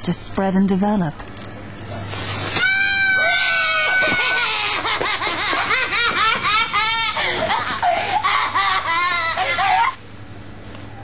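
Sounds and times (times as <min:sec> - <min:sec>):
child screaming: 0:02.6 - 0:04.7
child wailing: 0:02.6 - 0:05.0.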